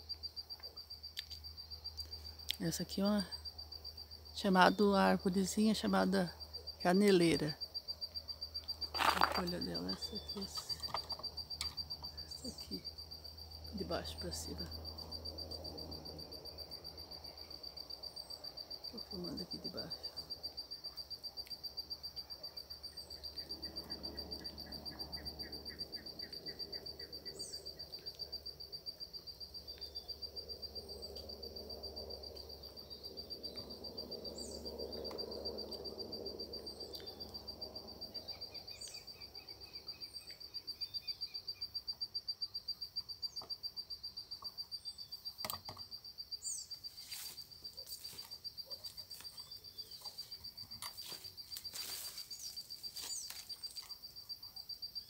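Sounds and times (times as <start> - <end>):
high insect trill: 0.0 - 55.0
leaves rustling against camera: 8.8 - 11.2, 46.8 - 54.1.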